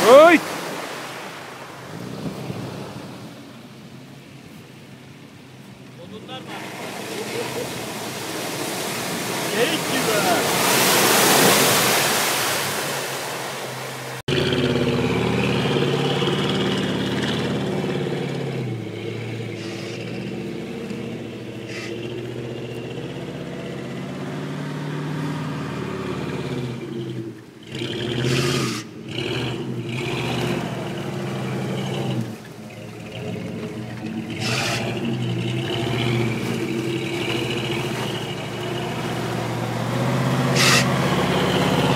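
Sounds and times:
mud splashing: 0:00.0 - 0:41.9
engine running and revving: 0:01.9 - 0:03.3, 0:13.7 - 0:41.9.

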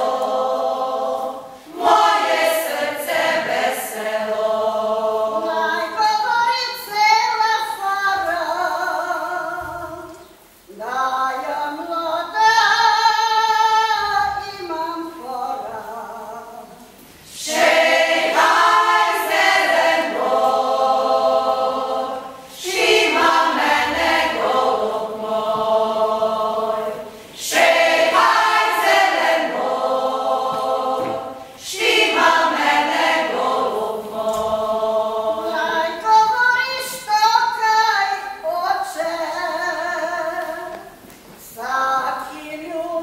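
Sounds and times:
group singing unaccompanied: 0:00.0 - 0:06.9, 0:15.4 - 0:40.8.

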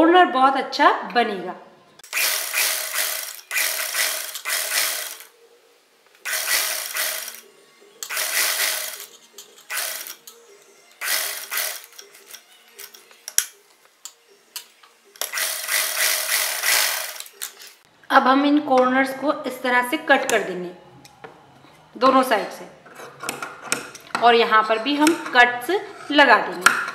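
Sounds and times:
sewing machine stitching: 0:02.0 - 0:05.3, 0:06.2 - 0:07.4, 0:08.0 - 0:09.1, 0:09.7 - 0:10.2, 0:11.0 - 0:12.9, 0:15.2 - 0:17.3.

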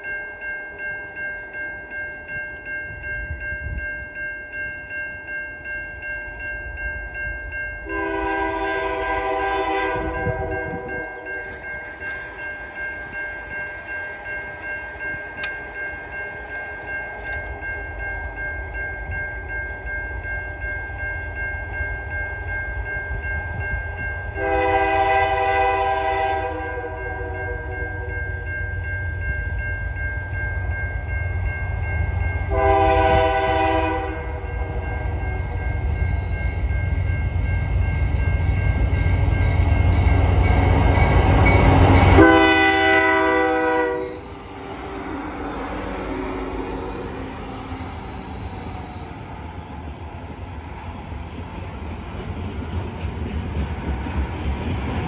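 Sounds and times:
train rumble: 0:00.0 - 0:55.0
train air horn blasts: 0:07.8 - 0:11.2, 0:24.4 - 0:28.1, 0:32.5 - 0:34.8, 0:42.2 - 0:45.2.

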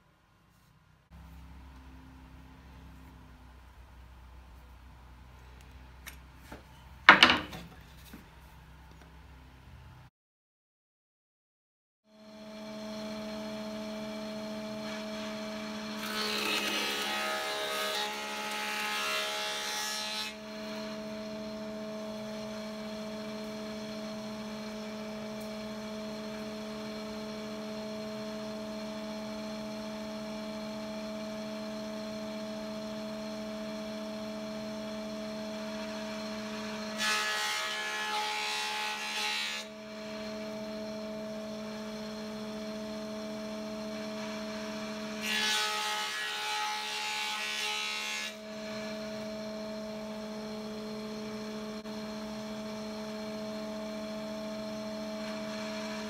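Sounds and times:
planer cutting wood: 0:12.2 - 0:56.0
thickness planer humming: 0:12.3 - 0:56.0.

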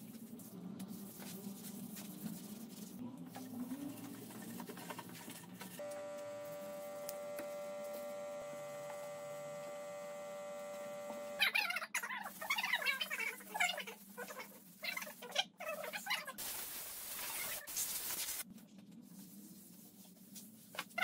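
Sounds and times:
belt sander motor hum: 0:05.8 - 0:11.4.

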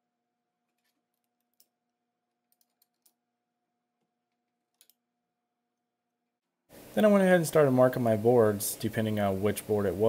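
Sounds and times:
small metallic clicks: 0:02.5 - 0:03.2.

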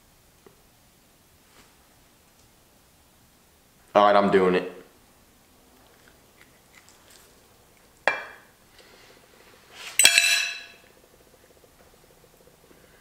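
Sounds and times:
fork clinking on plate: 0:10.0 - 0:10.8.

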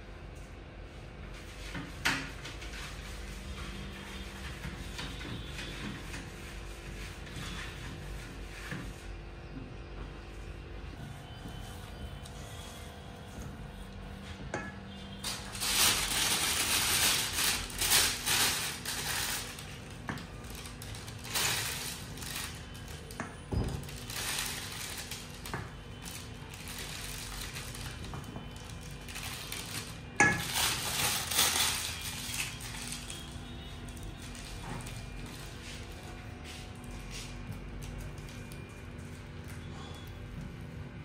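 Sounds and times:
utensils and dishes clinking: 0:26.8 - 0:33.2.

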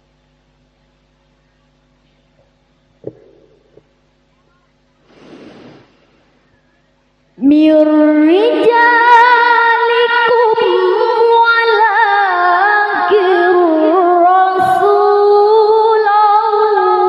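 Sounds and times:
woman reciting melodically: 0:06.6 - 0:17.0.

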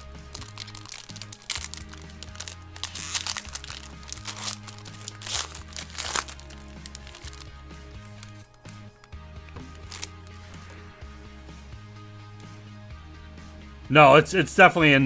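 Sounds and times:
foil wrapper crinkling: 0:00.0 - 0:08.7, 0:09.8 - 0:10.4
background music with bass line: 0:00.0 - 0:15.0.

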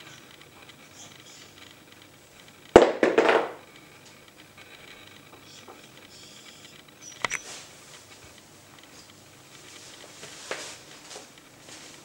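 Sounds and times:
knock on plastic wrap: 0:02.8 - 0:03.6.

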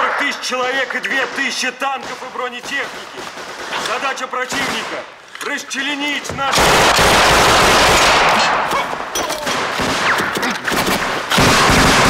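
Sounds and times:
automatic gunfire: 0:01.1 - 0:05.1, 0:06.5 - 0:12.0.

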